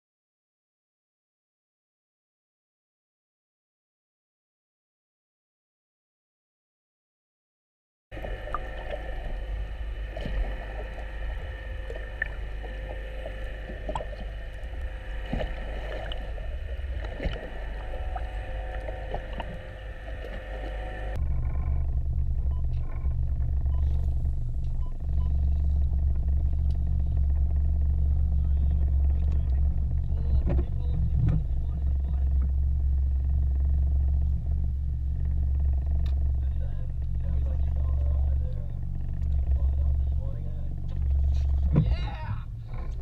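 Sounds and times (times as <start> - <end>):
low rumble on boat deck: 8.1 - 43.0
underwater hum with held tones: 8.1 - 43.0
small underwater clicks: 32.0 - 39.8.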